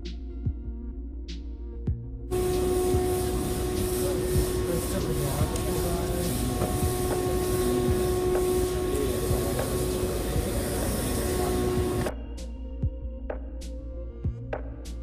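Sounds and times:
hum and din of museum hall: 2.3 - 12.1.

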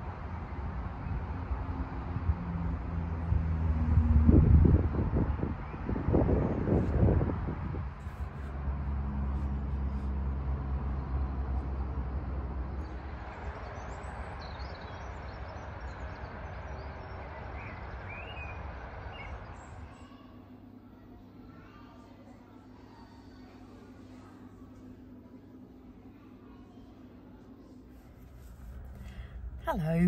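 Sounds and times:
vehicle engine hum: 0.0 - 20.8, 27.5 - 30.0.

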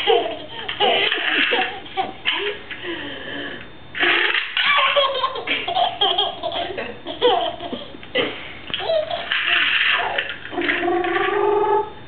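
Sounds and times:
baby laughing: 0.0 - 2.6, 4.0 - 8.0, 8.7 - 10.3.

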